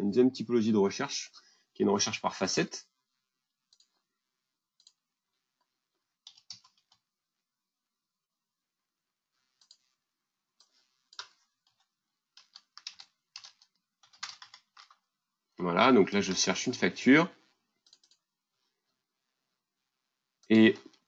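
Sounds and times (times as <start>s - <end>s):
keyboard keystrokes: 6.3s - 7.0s, 12.4s - 15.0s.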